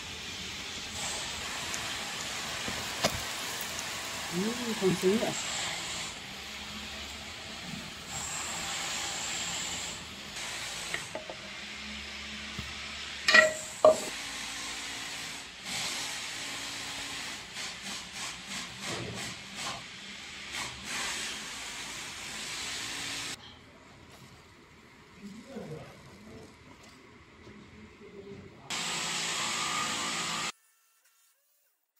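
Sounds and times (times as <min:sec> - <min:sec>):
pancake sizzling in oil: 0:00.3 - 0:08.4.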